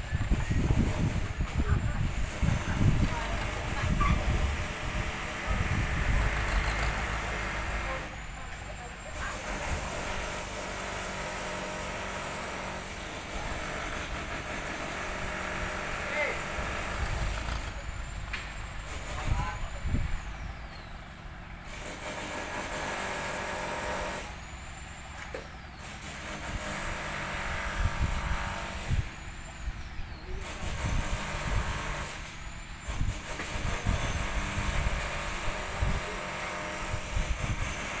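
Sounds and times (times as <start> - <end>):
truck engine rumbling: 0.0 - 31.6.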